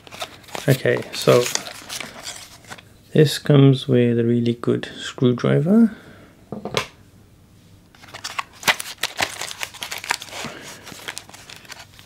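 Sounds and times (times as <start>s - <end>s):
plastic packaging crinkling: 0.0s - 2.8s, 8.0s - 12.0s.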